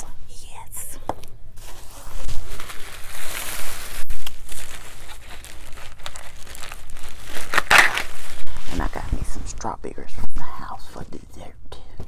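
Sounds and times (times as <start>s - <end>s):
plastic bag rustling: 1.5s - 9.7s.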